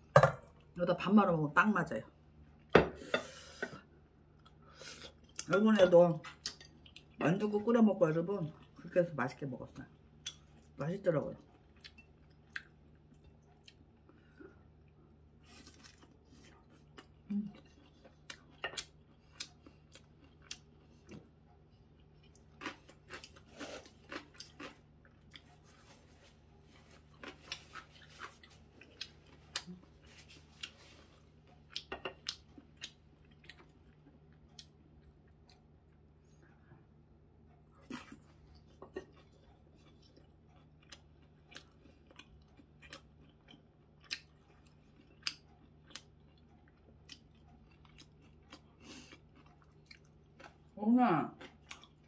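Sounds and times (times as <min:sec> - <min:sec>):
faint low hum: 0:00.0 - 0:52.0
person chewing crunchy food: 0:11.4 - 0:36.5, 0:37.4 - 0:50.8, 0:51.4 - 0:52.0.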